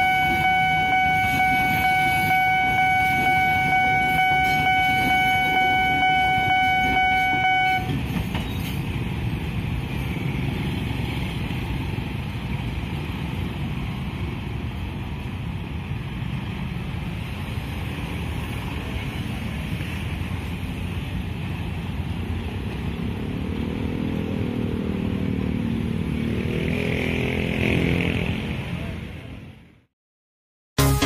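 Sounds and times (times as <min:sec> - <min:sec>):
level crossing alarm dinging: 0:00.0 - 0:07.9
cars passing: 0:00.0 - 0:29.8
motorcycles passing: 0:08.9 - 0:29.6.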